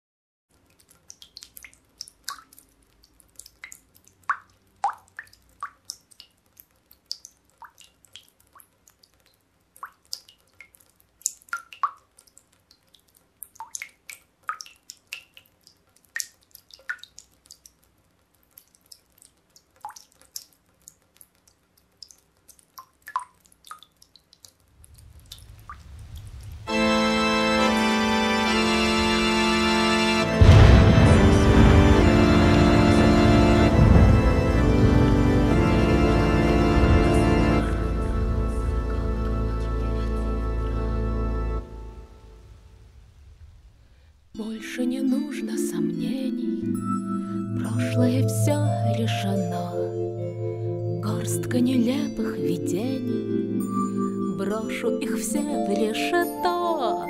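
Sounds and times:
water dripping: 0:00.5 - 0:44.4
low rumble: 0:24.8 - 0:44.3
music with sustained chords: 0:26.7 - 0:42.6, 0:45.7 - 0:51.8.

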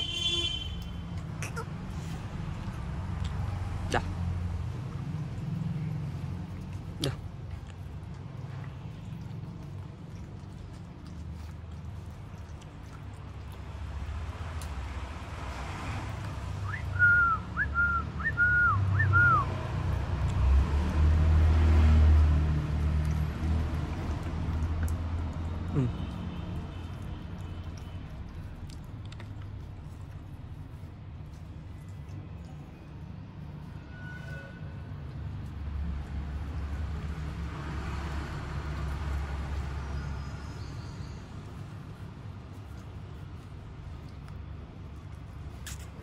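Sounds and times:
passing vehicle rumble: 0:00.8 - 0:46.0
person whistling: 0:16.6 - 0:19.5.

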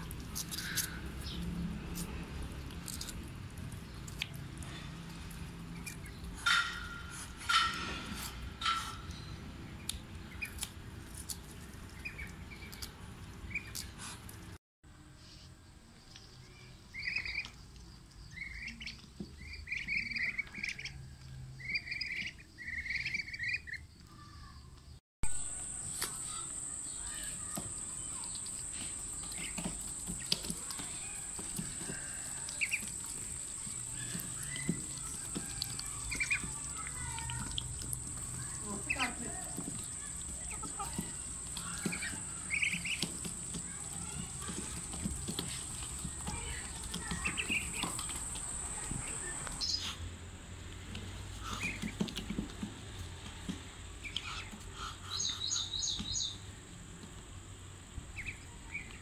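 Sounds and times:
bills pecking food clicks: 0:00.0 - 0:06.6, 0:09.8 - 0:14.4, 0:25.9 - 0:49.6
ducklings peeping: 0:00.0 - 0:14.6, 0:16.9 - 0:23.9, 0:25.5 - 0:50.0, 0:50.9 - 0:52.5, 0:54.0 - 0:56.4, 0:58.1 - 0:59.0.

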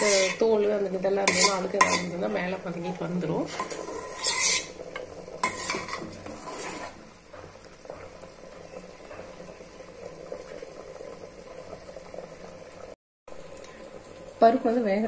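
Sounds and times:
metal spoon scraping a pan: 0:00.0 - 0:02.4, 0:03.4 - 0:07.0
pot sizzling: 0:00.0 - 0:15.0.

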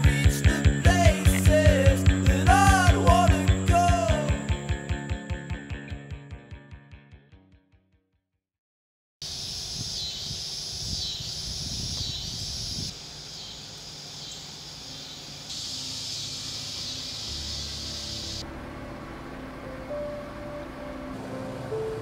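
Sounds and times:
insect chorus buzzing: 0:09.2 - 0:18.5.

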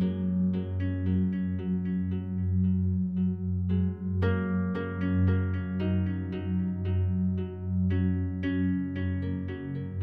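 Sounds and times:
plucked string notes: 0:00.0 - 0:10.0.

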